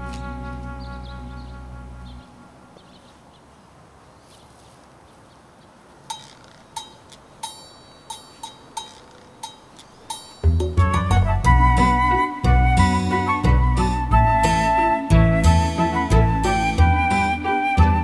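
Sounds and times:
ringing bell-like percussion: 0:06.2 - 0:11.0.

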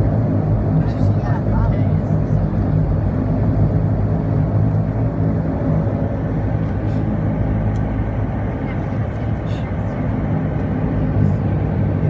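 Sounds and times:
turboprop engines droning: 0:00.0 - 0:12.0.

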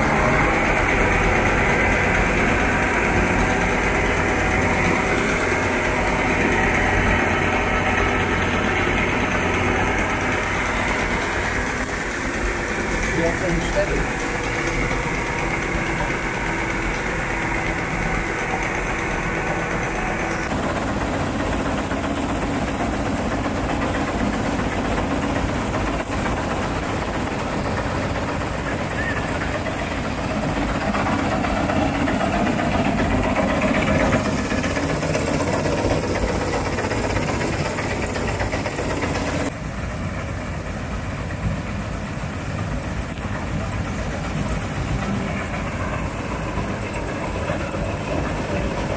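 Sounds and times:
combine harvester droning: 0:00.0 - 0:48.9.

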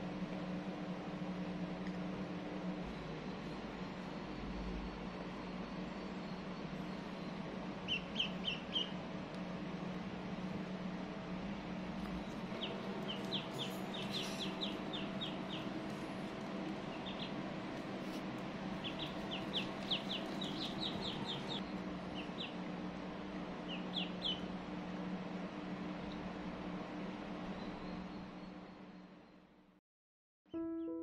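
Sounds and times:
steady low hum: 0:00.0 - 0:29.8
ducklings peeping: 0:06.0 - 0:09.1, 0:12.0 - 0:22.8, 0:23.6 - 0:24.6.

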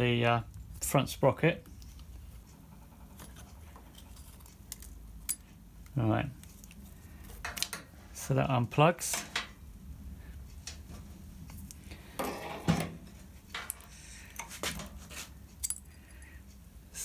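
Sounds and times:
metallic clicks and clinks: 0:15.5 - 0:16.4.

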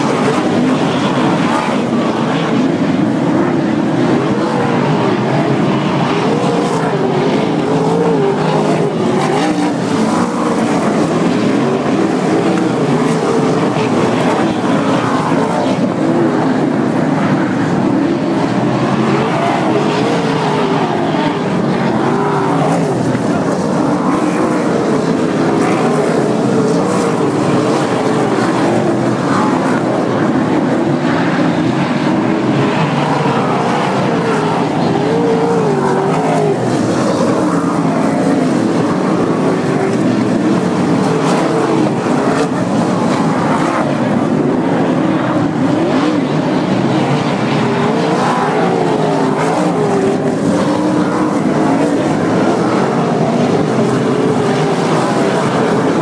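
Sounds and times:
race car engines circling track: 0:00.0 - 0:56.0.

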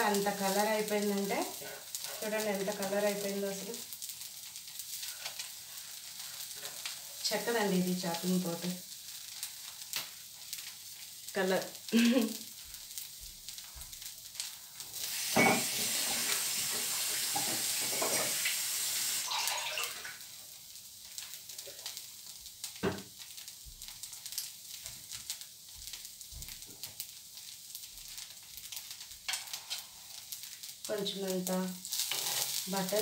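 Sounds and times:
dosa sizzling on a hot pan: 0:00.0 - 0:33.0
water tap running: 0:15.0 - 0:20.2.

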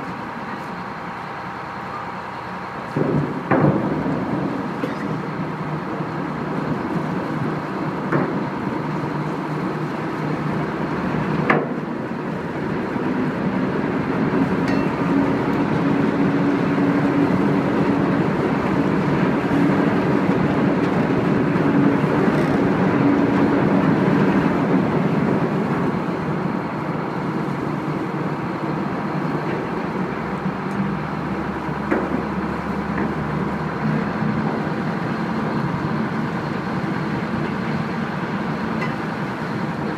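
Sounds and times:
boat engine droning: 0:00.0 - 0:39.9
wind and water rushing: 0:00.0 - 0:39.9.

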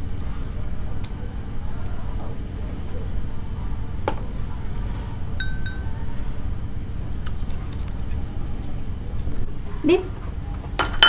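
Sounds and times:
steady low rumble: 0:00.0 - 0:10.8
ringing chime-like tones: 0:05.4 - 0:06.0.

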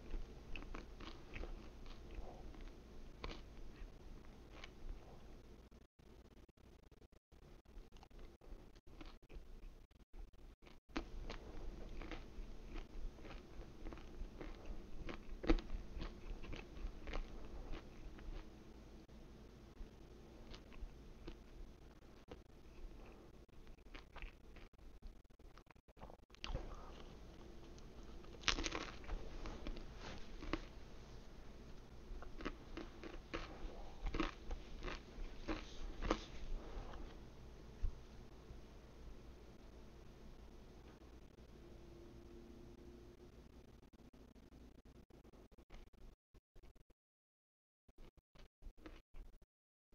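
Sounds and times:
person chewing crunchy crust: 0:00.0 - 0:05.4, 0:07.8 - 0:09.8, 0:10.4 - 0:18.6, 0:19.8 - 0:38.0.

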